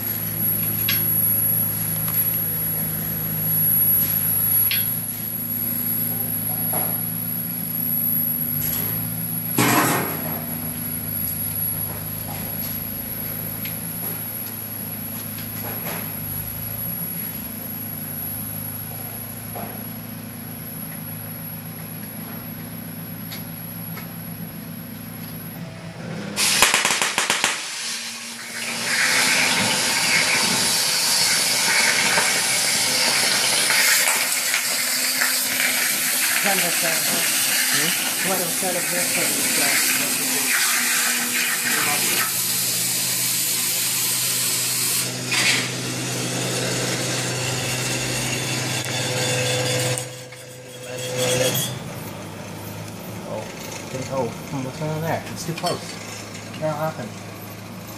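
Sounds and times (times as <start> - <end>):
steady low hum: 0.0 - 28.7
cutting torch hissing and crackling: 26.4 - 45.8.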